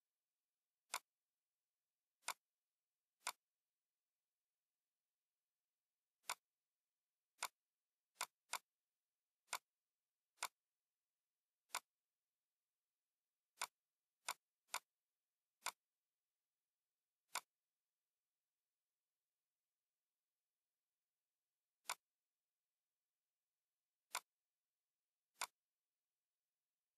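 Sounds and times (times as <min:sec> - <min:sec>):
computer mouse clicking: 0:00.9 - 0:01.1, 0:02.2 - 0:02.4, 0:03.2 - 0:03.5, 0:06.2 - 0:06.5, 0:07.4 - 0:07.6, 0:08.2 - 0:08.7, 0:09.4 - 0:09.7, 0:10.4 - 0:10.7, 0:11.6 - 0:11.9, 0:13.5 - 0:14.9, 0:15.6 - 0:15.8, 0:17.3 - 0:17.6, 0:21.8 - 0:22.1, 0:24.1 - 0:24.4, 0:25.3 - 0:25.7.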